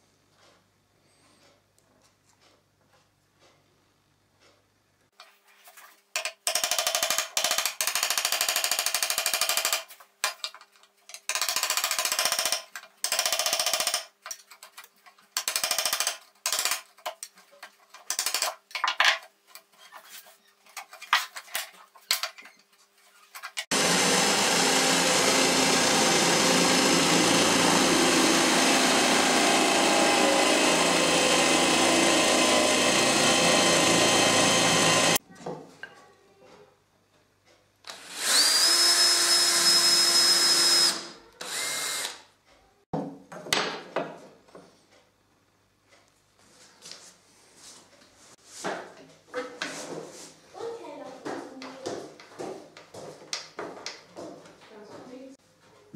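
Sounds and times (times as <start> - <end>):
electric drill boring into wood: 23.7 - 35.2, 37.9 - 42.2.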